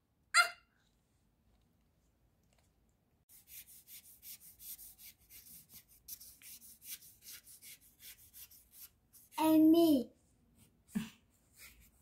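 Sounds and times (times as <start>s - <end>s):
brush scrubbing on paper: 3.3s - 9.5s, 11.4s - 12.0s.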